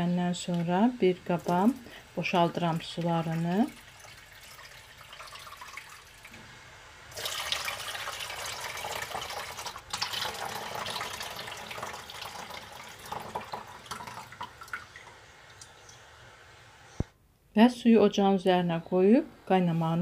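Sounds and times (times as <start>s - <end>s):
hot water pouring into a pot: 0.5s - 6.4s, 7.0s - 16.1s.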